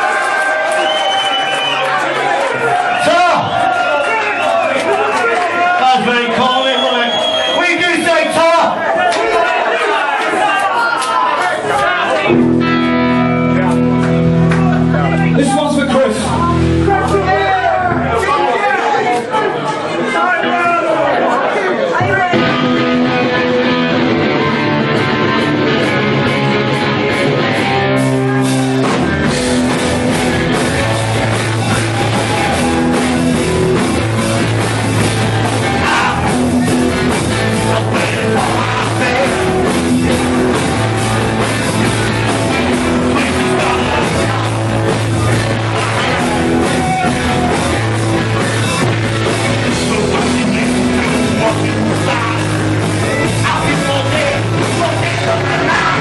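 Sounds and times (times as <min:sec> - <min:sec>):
punk rock band playing: 0:12.2 - 0:18.5, 0:22.0 - 0:56.0
drums and cymbals: 0:27.6 - 0:56.0.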